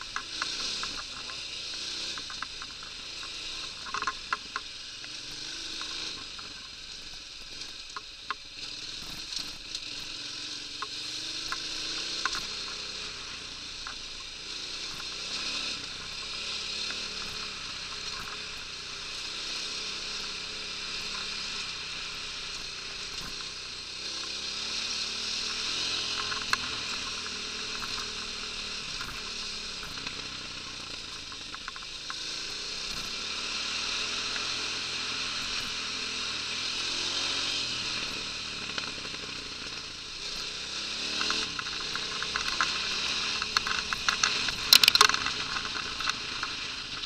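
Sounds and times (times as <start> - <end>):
sharp clicks and knocks: 0.0 - 5.2, 25.4 - 32.2, 41.2 - 47.0
motorcycle engine revving: 0.0 - 47.0.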